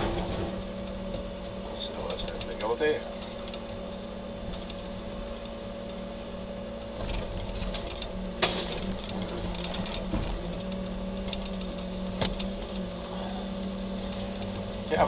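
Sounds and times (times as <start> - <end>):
crane engine and hydraulics humming: 0.0 - 15.0.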